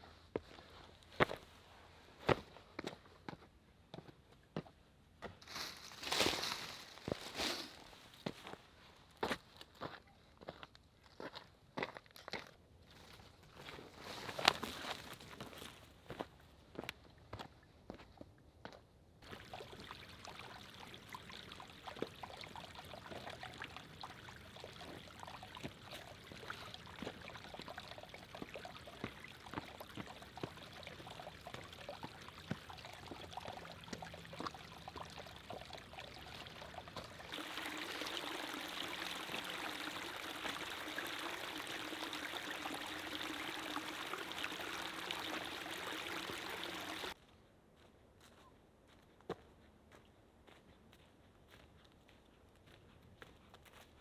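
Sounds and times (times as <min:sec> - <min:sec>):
stream trickling over stones: 0:13.4 - 0:15.8, 0:19.2 - 0:47.2.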